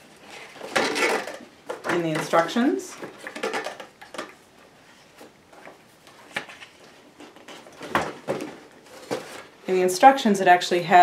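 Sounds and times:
paper rustling: 4.8s - 9.5s.

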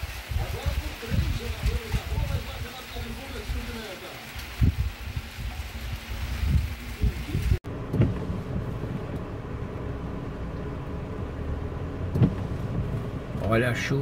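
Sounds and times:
rain and wind: 0.0s - 14.0s
wind thumps on microphone: 4.6s - 9.3s, 12.1s - 13.4s
car cabin engine rumble: 6.3s - 14.0s
dull knocks: 12.1s - 12.9s.

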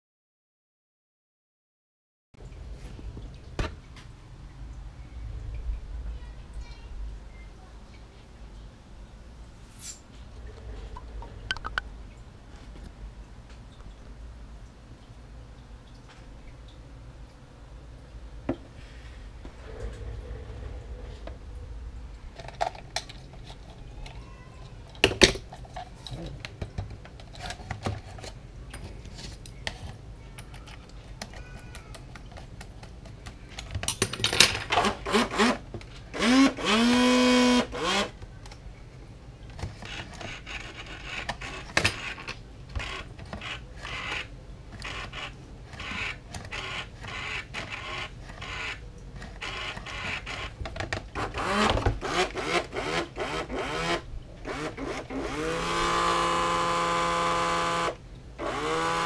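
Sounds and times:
clicks and knocks of parts handled: 24.9s - 34.9s
small electric motor spinning: 34.8s - 35.6s, 36.2s - 38.1s, 39.9s - 48.8s, 49.4s - 50.5s, 51.2s - 59.0s.

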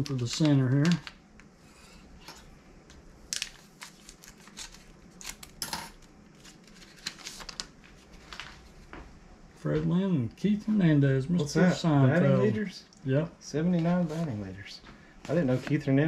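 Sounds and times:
plastic wrapper crinkling: 0.0s - 1.2s, 3.2s - 8.8s
cards being handled: 0.0s - 1.5s, 3.3s - 9.0s.

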